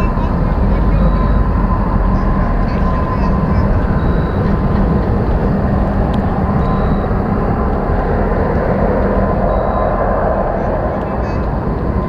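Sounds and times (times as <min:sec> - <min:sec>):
industrial rumble and drone: 0:00.0 - 0:12.0
steady hum: 0:00.0 - 0:12.0.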